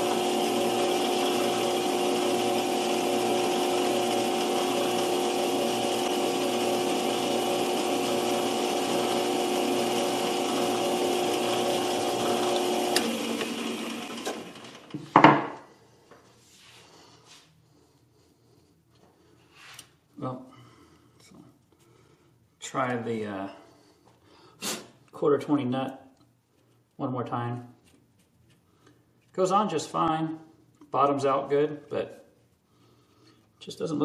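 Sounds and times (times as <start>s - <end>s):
metal lathe running: 0.0s - 14.9s
lathe spindle winding down: 0.0s - 15.0s.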